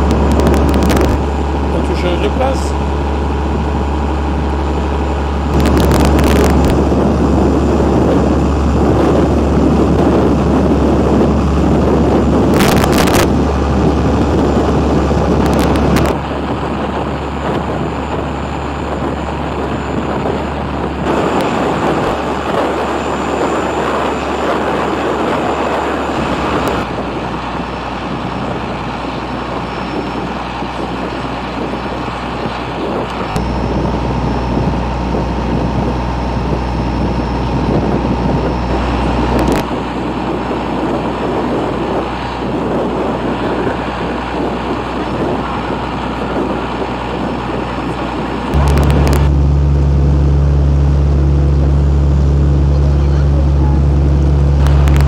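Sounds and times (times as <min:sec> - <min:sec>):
boat engine droning: 0:00.0 - 0:55.0
wind on microphone: 0:00.0 - 0:55.0
rushing water: 0:38.6 - 0:55.0
short crackles: 0:48.5 - 0:49.4, 0:54.6 - 0:55.0.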